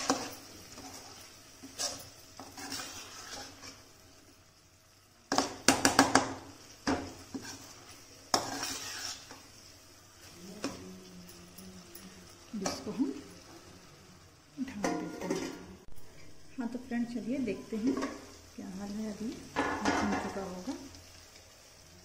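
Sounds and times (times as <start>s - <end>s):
metal spatula scraping a pan: 0.0s - 4.2s, 5.3s - 10.9s.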